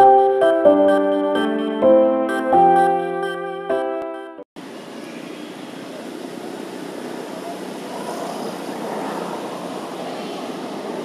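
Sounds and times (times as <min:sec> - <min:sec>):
outdoor hiss and rumble: 0:04.6 - 0:11.0.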